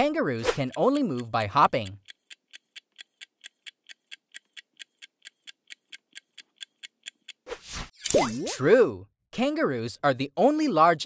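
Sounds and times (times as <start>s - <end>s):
rapid clock ticks: 0.0s - 7.4s.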